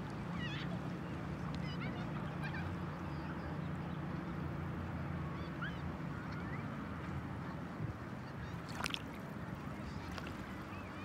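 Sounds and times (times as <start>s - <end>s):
low hum of shore ambience: 0.0s - 11.0s.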